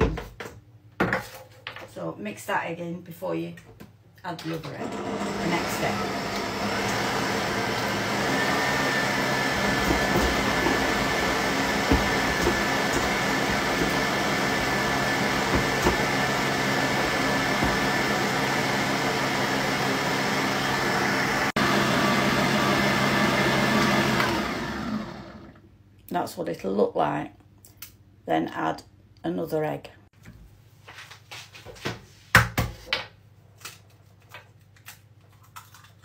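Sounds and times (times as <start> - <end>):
stand mixer motor whining: 4.8 - 25.6
beater knocking in metal bowl: 9.3 - 18.2.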